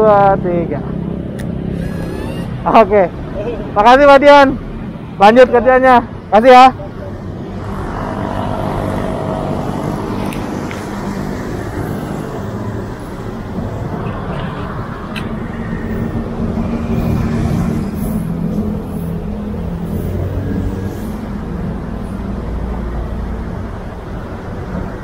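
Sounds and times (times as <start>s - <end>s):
road traffic passing: 0.0s - 25.0s
engine hum: 6.8s - 25.0s.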